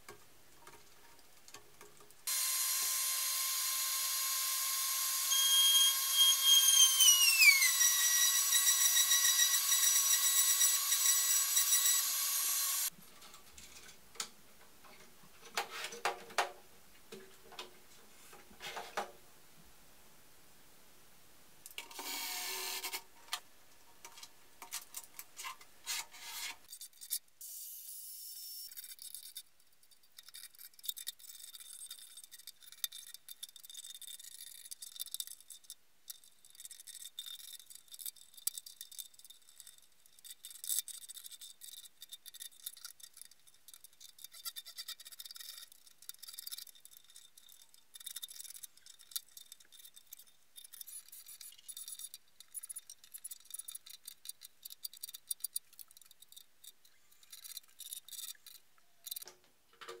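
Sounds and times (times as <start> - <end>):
plastic parts clicking on table: 30.2 - 60.0.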